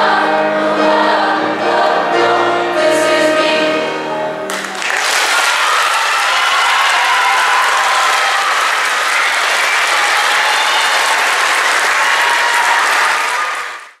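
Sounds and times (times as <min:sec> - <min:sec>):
audience applauding: 0:04.5 - 0:14.0.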